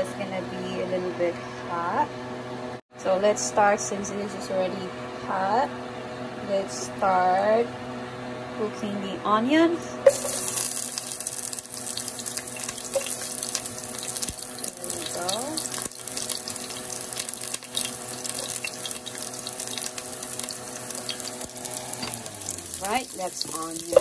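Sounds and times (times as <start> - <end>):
onions sizzling in hot oil: 10.1 - 24.0.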